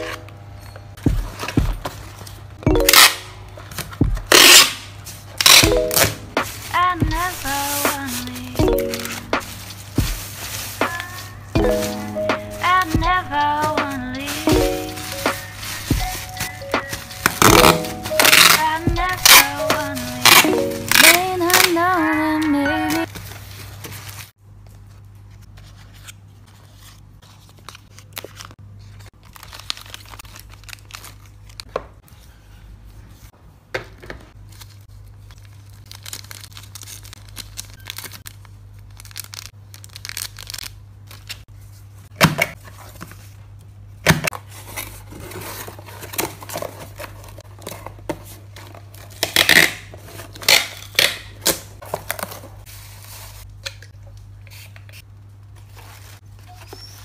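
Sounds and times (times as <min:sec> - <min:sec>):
packing tape ripping: 0:02.8 - 0:03.2, 0:04.3 - 0:06.6, 0:16.2 - 0:23.1, 0:35.8 - 0:41.4, 0:49.0 - 0:52.4
plastic packaging crinkling: 0:04.3 - 0:24.3, 0:27.4 - 0:31.7, 0:34.4 - 0:41.5.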